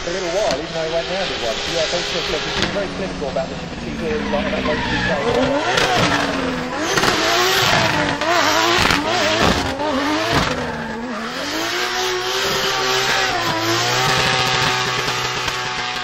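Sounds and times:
car engine revving: 0:00.0 - 0:16.0
tyres squealing and skidding: 0:00.0 - 0:16.0.

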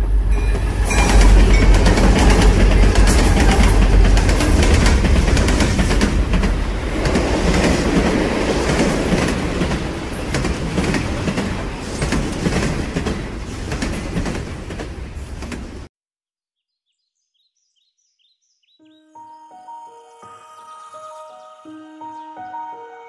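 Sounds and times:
train running on rails: 0:00.0 - 0:15.9.

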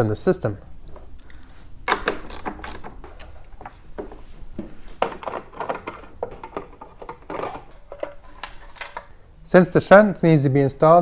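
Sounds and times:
clicks and knocks of cables: 0:01.9 - 0:09.1.

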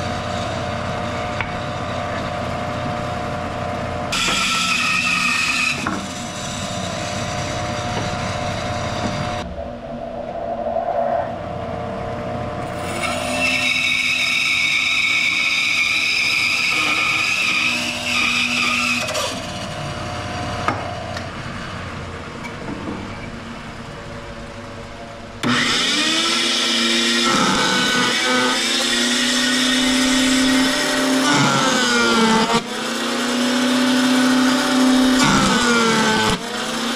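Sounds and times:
band saw cutting wood: 0:04.1 - 0:09.4, 0:12.7 - 0:21.1, 0:25.4 - 0:36.9.

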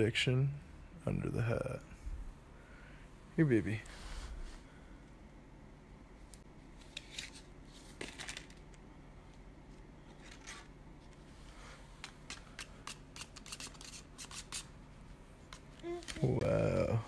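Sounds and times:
playing cards clicking and rustling: 0:06.8 - 0:08.8, 0:09.7 - 0:10.7, 0:12.0 - 0:14.7.

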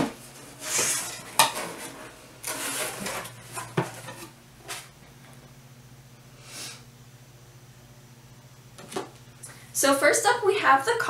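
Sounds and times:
cardboard scraping and rustling: 0:00.0 - 0:05.0.

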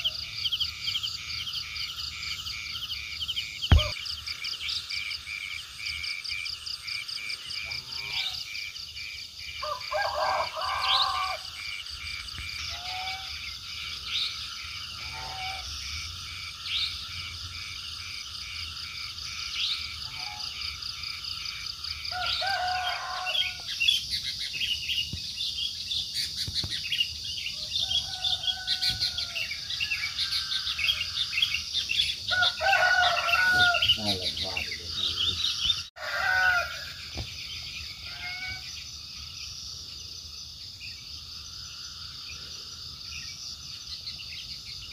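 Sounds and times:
frogs and insects trilling: 0:00.0 - 0:44.9
low bird calls: 0:02.2 - 0:05.3.

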